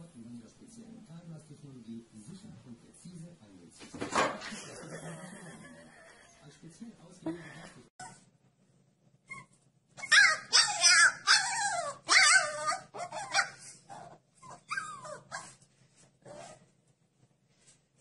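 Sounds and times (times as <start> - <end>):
puppy howling: 10.0 - 15.4.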